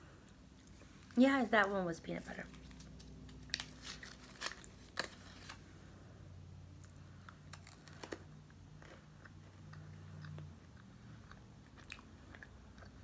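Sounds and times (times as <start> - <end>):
candy wrapper crinkling: 2.4 - 5.6
candy being bitten: 6.8 - 13.0.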